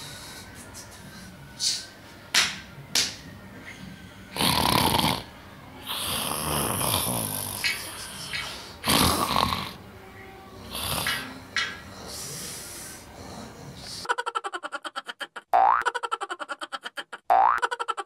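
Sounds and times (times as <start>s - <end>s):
person snoring: 4.3s - 7.6s, 8.8s - 9.8s, 10.6s - 11.3s.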